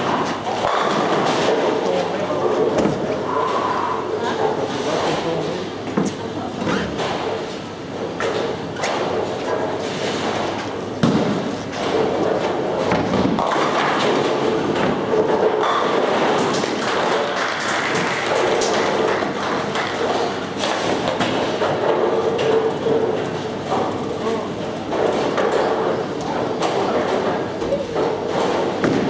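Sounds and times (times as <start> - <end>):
bowling balls and pins clattering: 0.0 - 3.6, 4.4 - 29.0
heavy bowling ball thump: 10.1 - 16.5.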